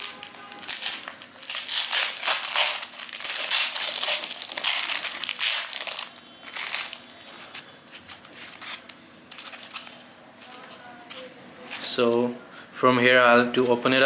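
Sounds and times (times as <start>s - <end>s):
packing tape crinkling: 0.0s - 12.2s
soft handling rustles: 4.0s - 12.2s.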